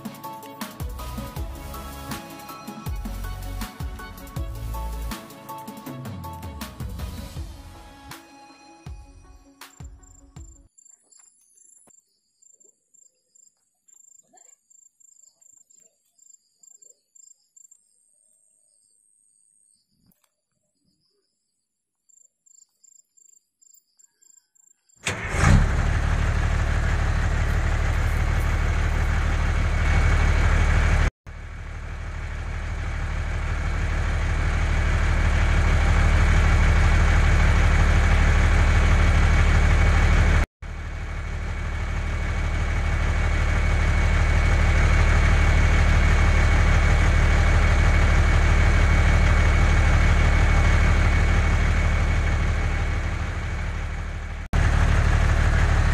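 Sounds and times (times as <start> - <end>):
vehicle engine rumbling: 25.0 - 55.9.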